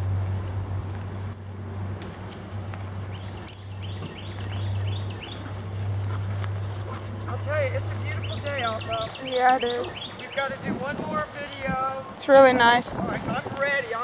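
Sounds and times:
footsteps through grass: 0.0s - 14.0s
bird chirping: 3.0s - 11.7s.

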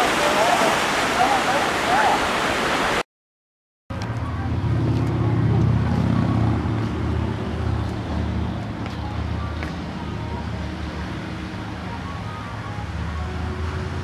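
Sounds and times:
low motor drone: 4.0s - 9.5s.

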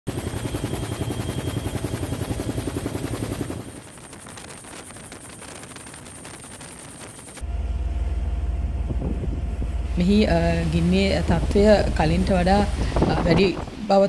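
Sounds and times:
helicopter rotor and engine: 0.1s - 13.9s
thin high whine: 3.4s - 14.0s.

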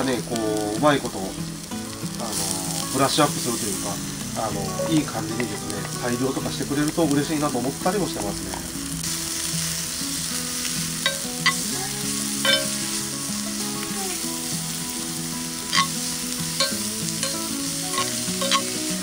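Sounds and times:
onion sizzling in oil: 0.0s - 19.0s
metal spoon scraping pan: 12.4s - 12.8s, 15.7s - 16.0s, 16.6s - 18.8s.

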